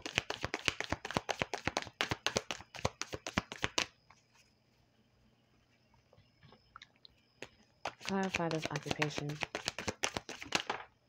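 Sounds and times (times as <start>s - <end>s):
cards being shuffled: 0.0s - 3.9s, 7.8s - 10.8s.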